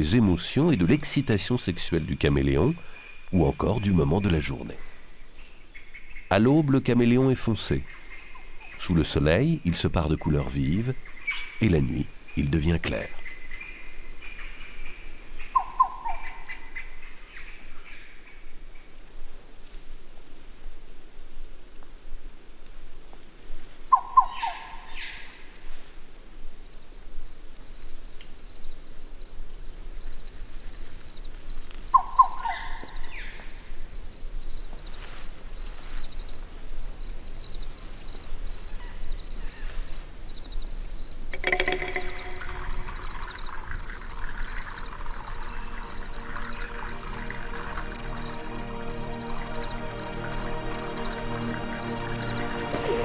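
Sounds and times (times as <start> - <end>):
lower pulsing insect trill: 0.0 - 53.0
high pulsing insect trill: 6.2 - 53.0
falling animal call: 41.4 - 43.2.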